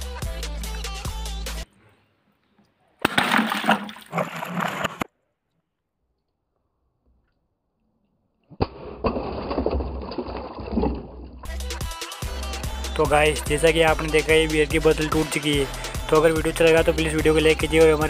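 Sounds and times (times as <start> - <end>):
water sloshing and gurgling: 3.1 - 5.1, 9.1 - 11.5.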